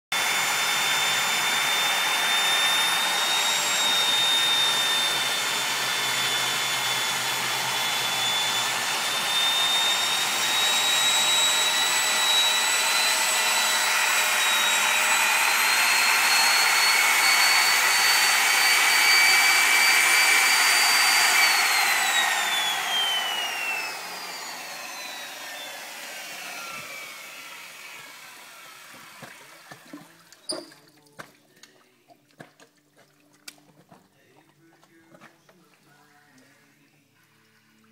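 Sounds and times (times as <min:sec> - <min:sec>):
motor spinning down: 0:00.1 - 0:30.1
electric core drill boring concrete: 0:00.1 - 0:30.2.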